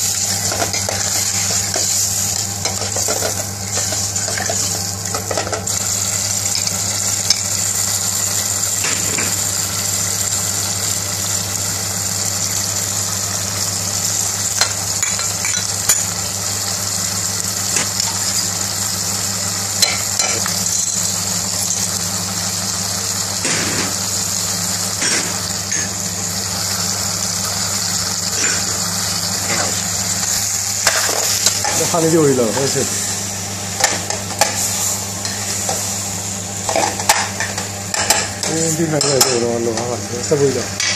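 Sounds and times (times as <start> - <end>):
food sizzling in saucepan: 0.0 - 40.9
utensils clinking against pan: 0.4 - 5.8, 14.6 - 16.1, 19.8 - 22.0, 30.8 - 32.8, 36.7 - 39.9.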